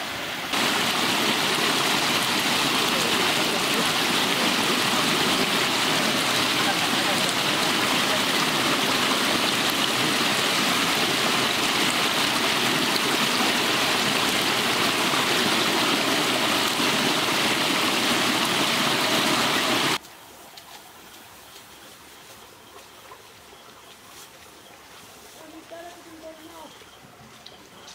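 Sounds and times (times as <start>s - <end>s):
water rushing through fish trap: 0.0s - 20.0s
faint outdoor background: 20.0s - 27.9s.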